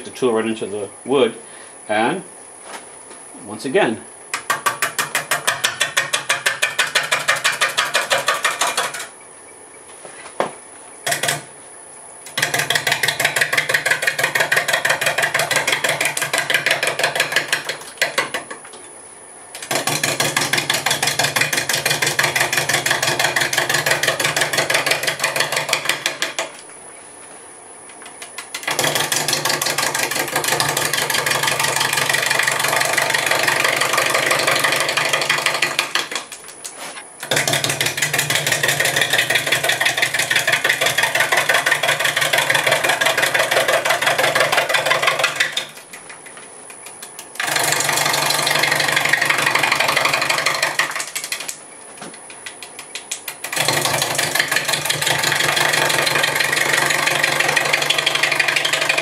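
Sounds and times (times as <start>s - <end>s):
gouge chopping wood on lathe: 4.3s - 9.1s, 11.1s - 11.5s, 12.3s - 18.6s, 19.6s - 26.6s, 28.1s - 51.6s, 52.3s - 59.0s
lathe hum: 19.6s - 26.5s, 28.4s - 36.2s, 36.9s - 45.8s, 47.4s - 51.5s, 53.4s - 59.0s.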